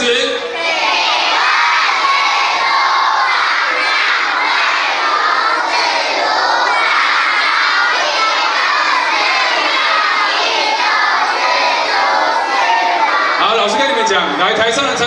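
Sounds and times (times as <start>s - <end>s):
children reading aloud in unison: 0.4s - 14.0s.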